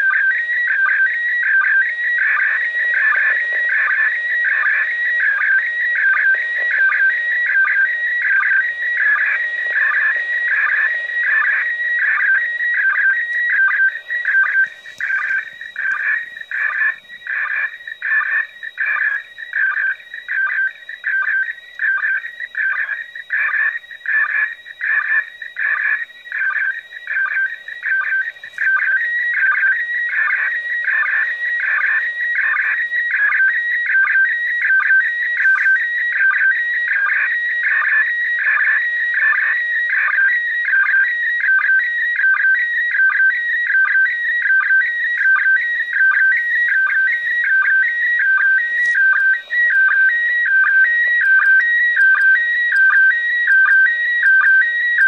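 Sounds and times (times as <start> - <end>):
warbling whistle-like radio tones: 0.0 - 55.0.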